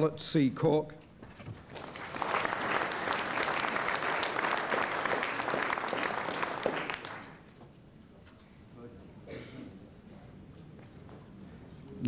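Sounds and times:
audience applauding: 1.7s - 7.5s.

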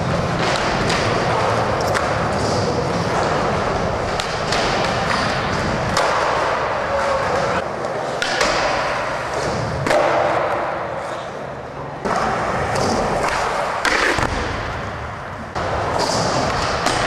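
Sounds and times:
skateboard wheels rolling: 0.0s - 10.6s, 12.0s - 17.0s.

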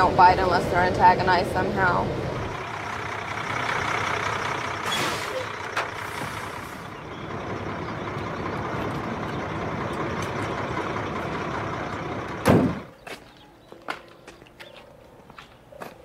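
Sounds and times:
truck engine running: 0.0s - 13.0s
loud thud: 12.4s - 12.9s.

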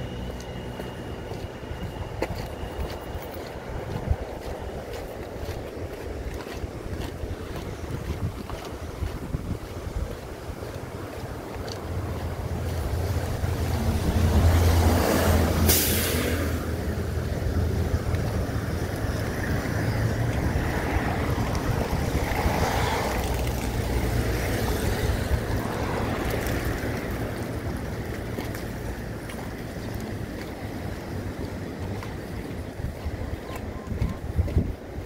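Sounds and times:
vehicle low rumble: 0.0s - 35.0s
wind on microphone: 1.0s - 15.6s, 16.4s - 35.0s
short hiss: 15.7s - 16.5s.

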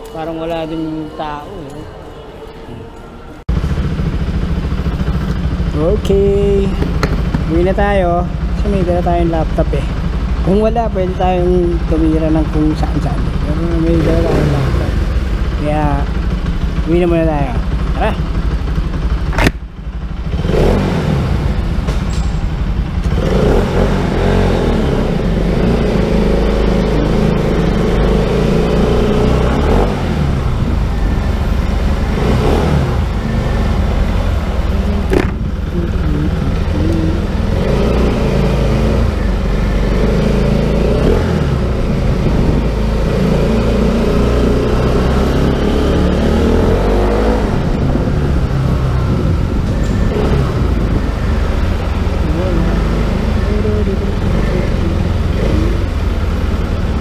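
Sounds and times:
motorcycle engine revving: 3.5s - 57.0s.

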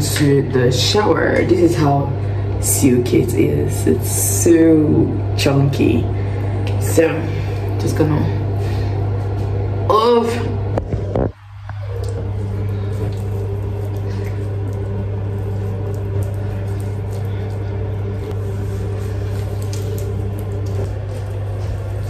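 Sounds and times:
low electrical hum: 0.0s - 22.0s
face scrub rubbing on skin: 11.7s - 22.0s.

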